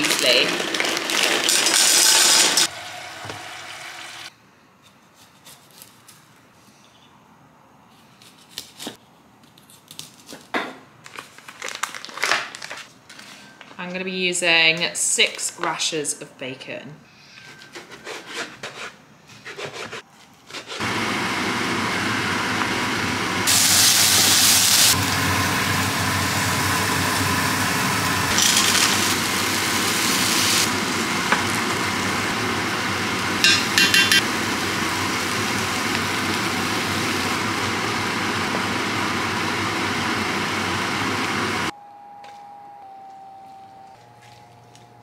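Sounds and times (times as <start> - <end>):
bacon sizzling in pan: 22.6 - 41.0.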